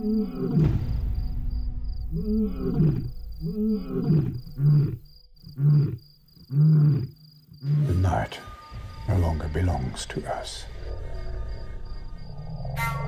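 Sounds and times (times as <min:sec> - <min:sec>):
lion grunting: 0:00.0 - 0:00.8, 0:02.1 - 0:08.2
lion roaring: 0:00.0 - 0:00.8, 0:02.1 - 0:08.1.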